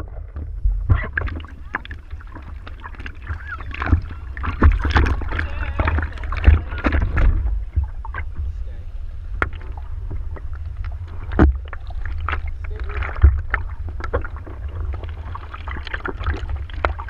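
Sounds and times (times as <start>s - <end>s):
knocks and splashes: 0.0s - 8.5s, 9.4s - 17.0s
low rumble: 0.0s - 17.0s
water slapping surfboard: 0.0s - 17.0s.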